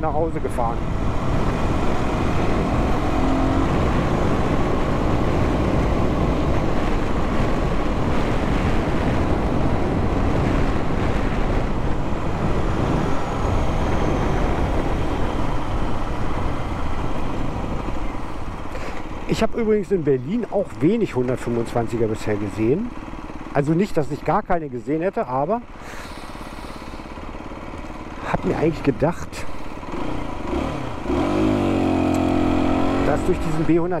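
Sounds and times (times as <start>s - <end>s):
wind rush: 0.0s - 19.6s
motorcycle engine: 0.0s - 34.0s.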